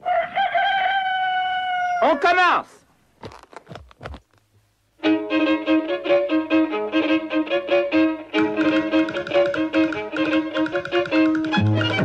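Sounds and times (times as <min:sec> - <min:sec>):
fiddle dance music: 0:05.0 - 0:12.0.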